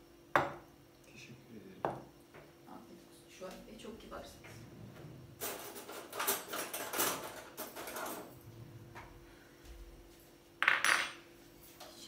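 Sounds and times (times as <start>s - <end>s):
tableware clinking: 10.6s - 11.2s.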